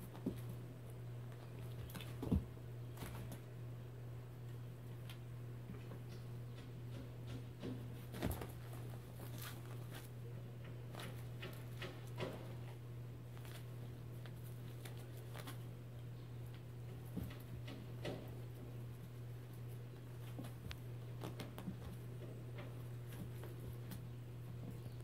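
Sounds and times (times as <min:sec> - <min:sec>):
paws tapping and scuffing: 0:05.0 - 0:15.8, 0:16.5 - 0:25.0.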